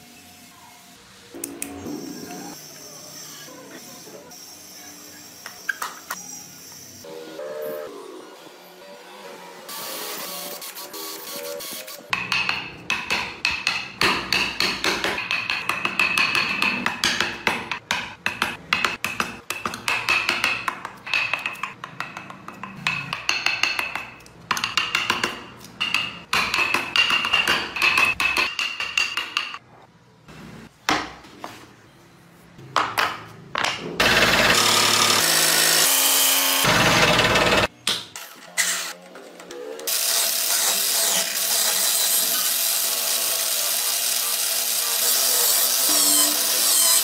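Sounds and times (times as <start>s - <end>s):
band saw running: 34.0s - 37.7s.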